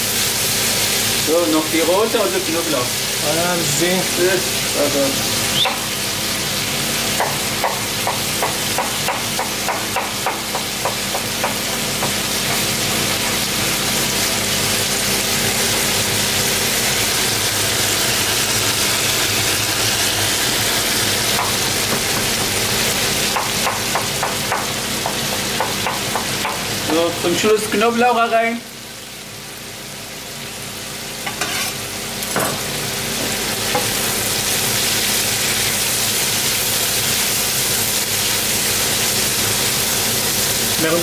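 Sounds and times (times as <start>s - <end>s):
food sizzling in a frying pan: 0.0s - 41.0s
knife chopping on wooden board: 7.2s - 12.6s, 21.4s - 22.6s, 23.3s - 26.6s.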